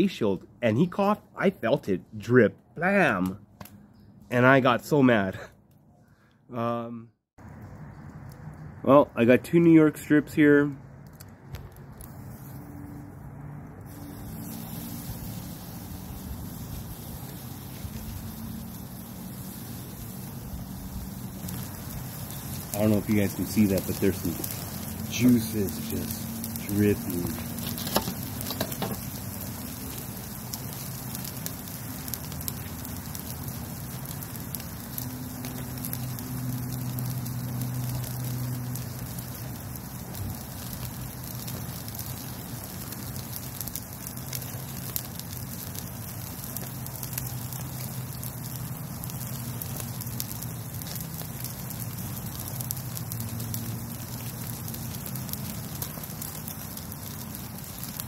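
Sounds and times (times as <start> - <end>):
wood fire crackling: 0.0 - 6.4, 7.4 - 58.0
juices dripping onto flames: 7.4 - 58.0
steaks sizzling on grill: 13.9 - 58.0.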